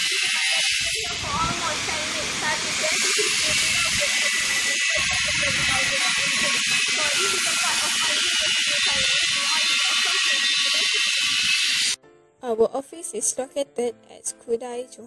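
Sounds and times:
loud steady hiss: 0.0s - 12.0s.

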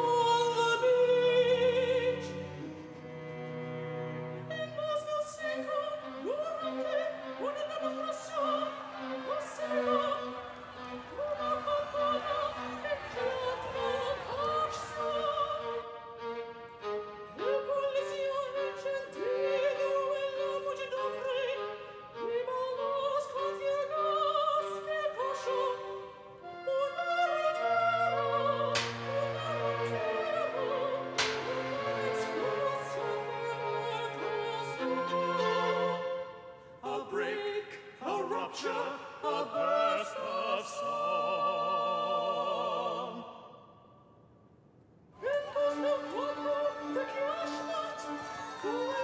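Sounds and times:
orchestral strings: 0.0s - 43.2s, 45.2s - 49.0s
operatic singing: 0.0s - 43.7s, 45.2s - 49.0s.

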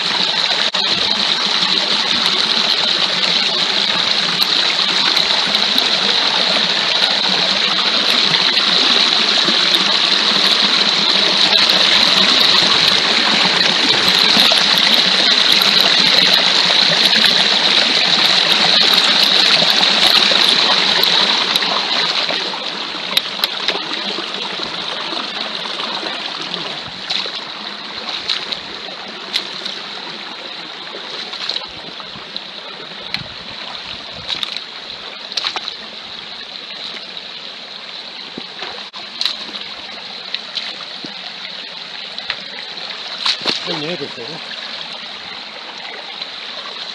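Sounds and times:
stream water rushing: 0.0s - 46.9s
footsteps splashing in water: 0.7s - 24.0s, 25.8s - 35.9s, 38.2s - 41.4s, 42.1s - 44.8s.

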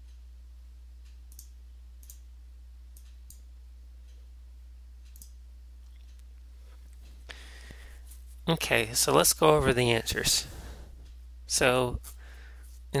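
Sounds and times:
low electrical hum: 0.0s - 13.0s
computer mouse clicks: 1.3s - 2.3s, 5.0s - 6.3s.

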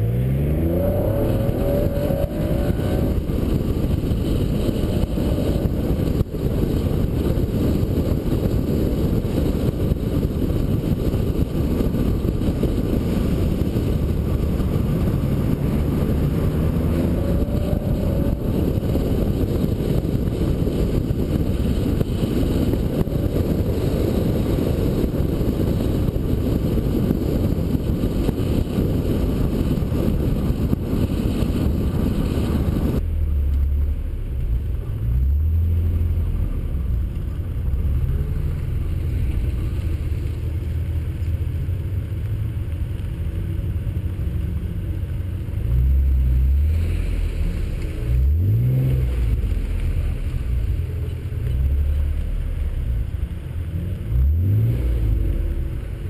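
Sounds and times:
engine revving: 0.0s - 6.3s, 12.7s - 27.4s, 45.4s - 52.6s, 53.7s - 56.0s
car engine driving: 0.0s - 56.0s
wind and road rush: 0.0s - 56.0s.

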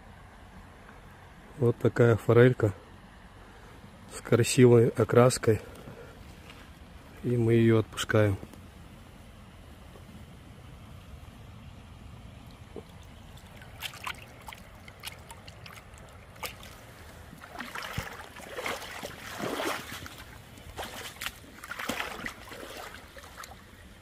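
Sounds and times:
stream rushing: 7.6s - 24.0s
water splashing: 12.1s - 24.0s
water sloshing and dripping: 12.3s - 24.0s.

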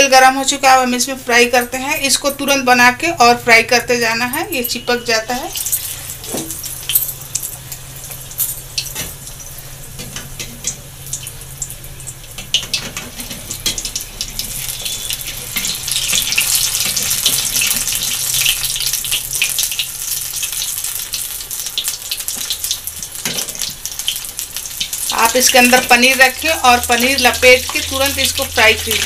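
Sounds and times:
food sizzling in hot oil: 4.4s - 29.0s
metal spoon stirring: 5.5s - 9.1s.

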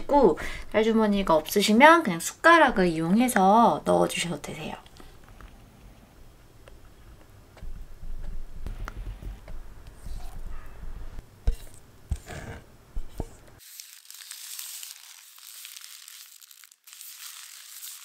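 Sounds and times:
plastic bag crinkling: 13.6s - 18.0s.

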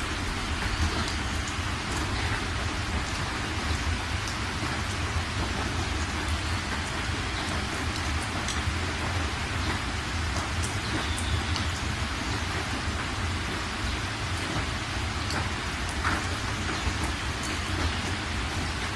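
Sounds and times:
steady rain hiss: 0.0s - 18.9s.

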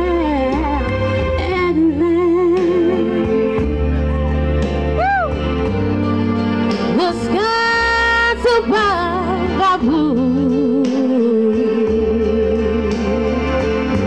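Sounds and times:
woman singing karaoke: 0.0s - 3.7s, 6.8s - 13.6s
music backing track: 0.0s - 14.0s.

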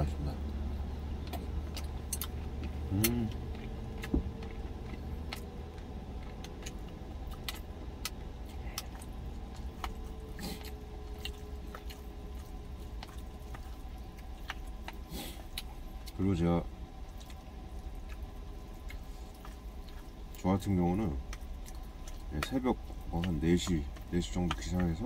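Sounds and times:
chewing: 0.4s - 25.0s
person humming: 2.9s - 3.4s.

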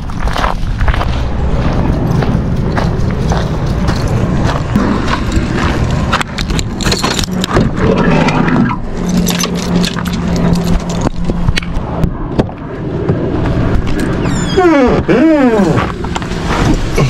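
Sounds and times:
keys jangling: 6.3s - 7.6s, 9.0s - 11.3s.

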